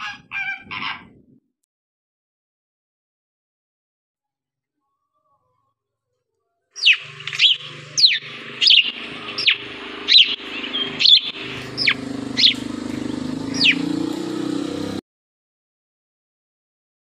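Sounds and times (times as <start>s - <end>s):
parrot calling: 0.0s - 1.2s, 6.8s - 14.0s.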